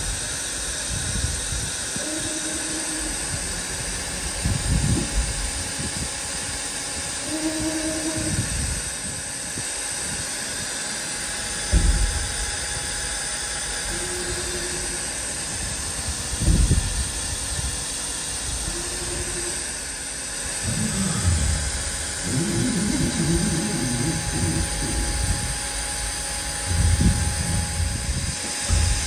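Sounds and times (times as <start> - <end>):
axis drives humming: 0.0 - 29.0
low thumps: 11.7 - 12.6, 20.6 - 25.6, 26.5 - 29.0.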